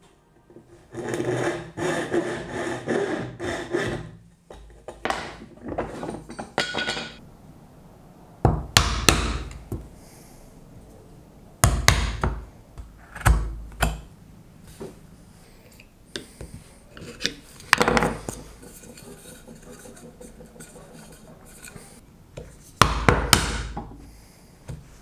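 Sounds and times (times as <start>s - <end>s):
hand tool scraping wood: 0.9s - 4.2s, 18.0s - 22.0s.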